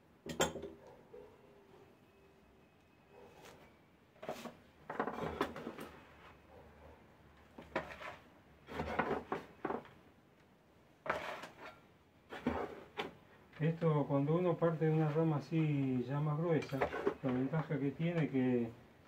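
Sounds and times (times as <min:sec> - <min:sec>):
soil rustling and trowel scraping: 0:07.6 - 0:09.6, 0:11.0 - 0:18.4.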